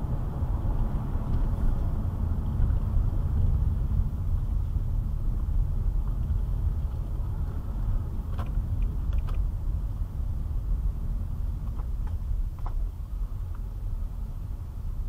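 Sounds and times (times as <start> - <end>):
car interior engine and road rumble: 0.0 - 15.0.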